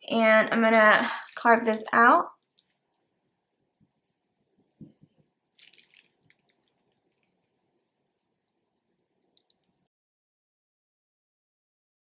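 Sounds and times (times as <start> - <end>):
crackly small clicks: 2.4 - 3.1, 5.6 - 7.6, 9.2 - 9.9.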